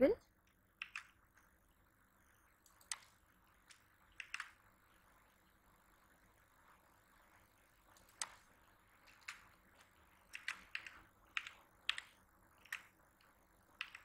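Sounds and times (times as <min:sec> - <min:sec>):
keyboard key clicks: 0:00.8 - 0:01.2, 0:02.6 - 0:04.6, 0:10.3 - 0:13.0, 0:13.8 - 0:14.0.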